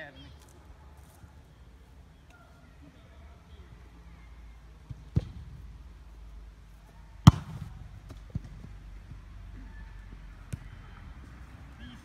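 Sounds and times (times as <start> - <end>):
football kick thump: 5.1 - 5.5, 7.2 - 8.7.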